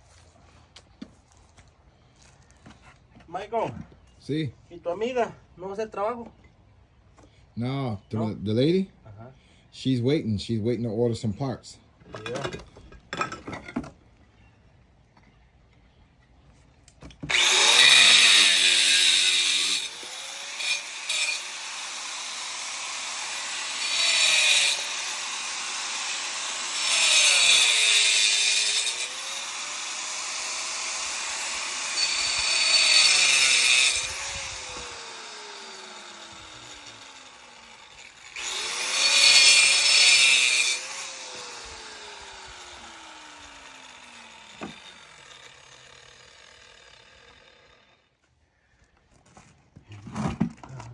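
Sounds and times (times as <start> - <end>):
angle grinder cutting stone: 17.3 - 48.1.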